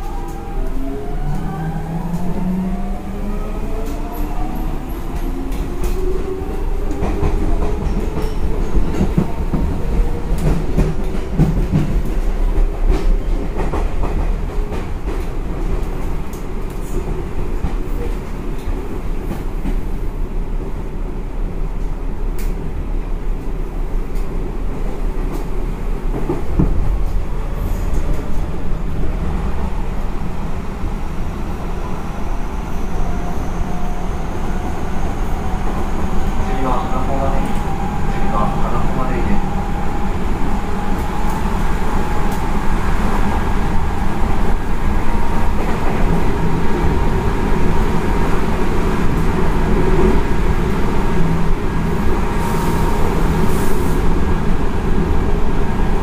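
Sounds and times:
train wheel-on-rail rumble: 0.0s - 56.0s
rail joint clicks: 3.7s - 19.9s, 21.8s - 22.7s, 23.4s - 29.1s, 33.2s - 47.5s.

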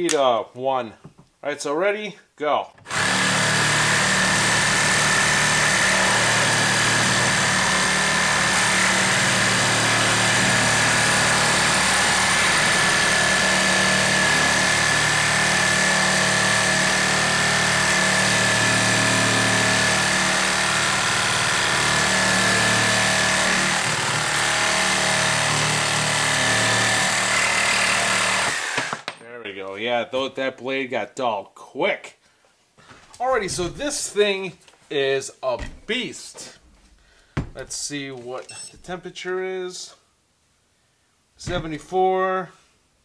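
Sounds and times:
reciprocating saw cutting metal pipe: 2.9s - 29.1s.

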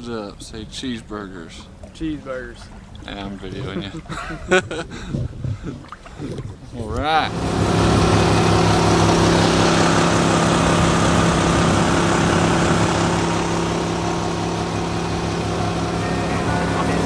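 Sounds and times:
outboard motor running: 1.2s - 17.0s
rushing wind: 2.7s - 15.7s.

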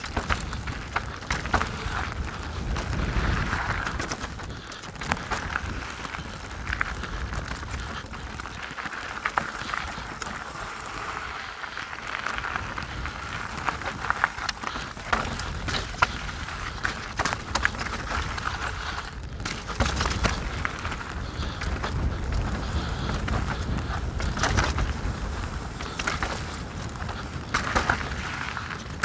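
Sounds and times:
bike clicks and rattles: 0.0s - 29.0s
bike tyres on dirt and stones: 0.0s - 29.0s.

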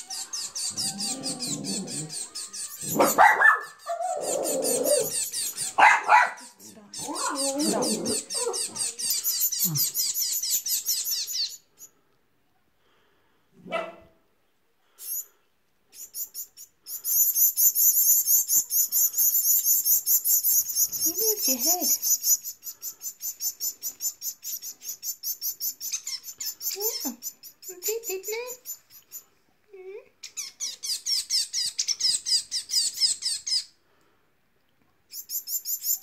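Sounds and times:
fledgling finches begging calls: 0.0s - 11.6s, 16.0s - 29.2s.

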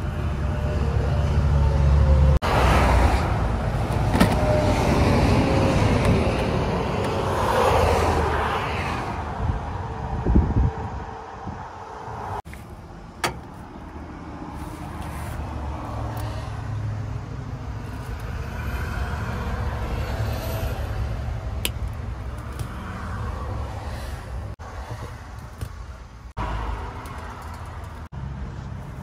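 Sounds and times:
motor vehicles rumbling: 0.0s - 29.0s.

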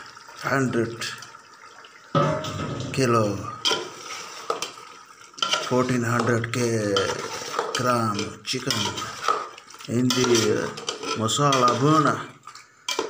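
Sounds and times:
metal spoon scraping a pot: 5.4s - 12.1s
spoon clattering: 10.0s - 12.0s.

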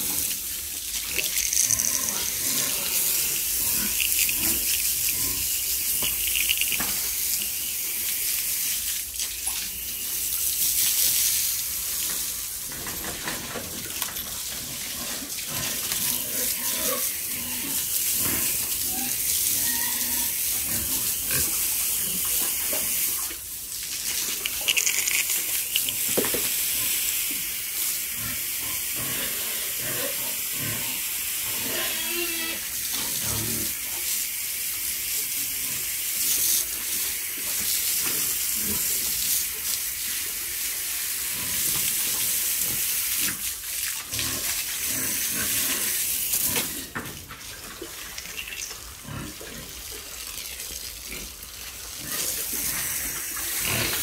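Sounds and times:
hose spraying water: 0.0s - 54.0s.

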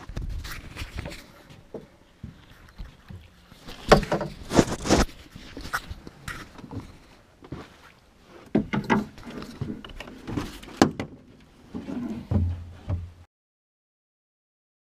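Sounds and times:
knocks and clunks in a boat: 1.0s - 4.5s, 6.3s - 13.2s.

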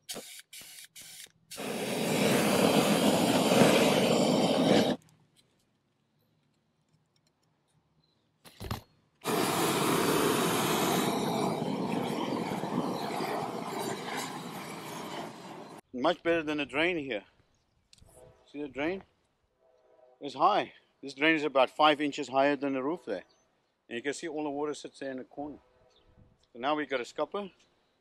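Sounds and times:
roofing torch hissing: 1.5s - 5.0s, 9.2s - 15.8s.

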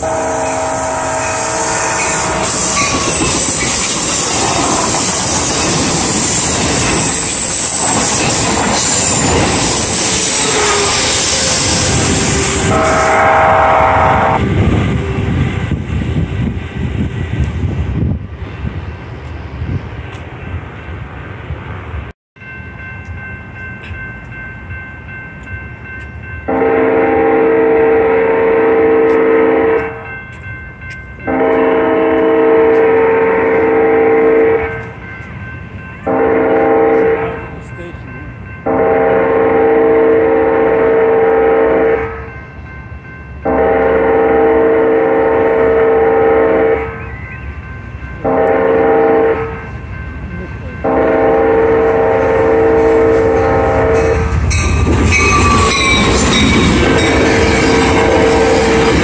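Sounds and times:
train air horn blasts: 0.0s - 15.5s, 26.5s - 30.0s, 31.3s - 34.9s, 36.1s - 37.5s, 38.6s - 42.3s, 43.4s - 47.0s, 48.2s - 49.7s, 50.8s - 54.5s, 55.1s - 59.0s.

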